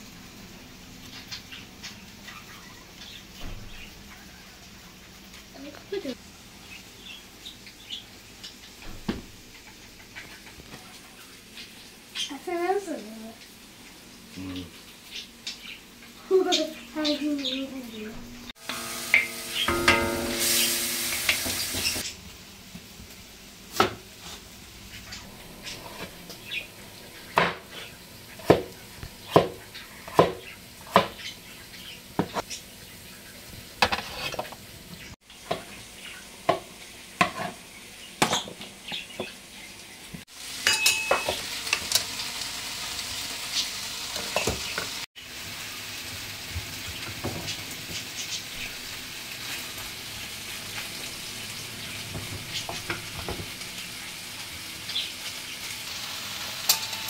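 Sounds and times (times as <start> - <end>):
chicken sizzling in a pan: 0.0 - 57.0
utensil scraping and knocking pan: 33.8 - 34.6.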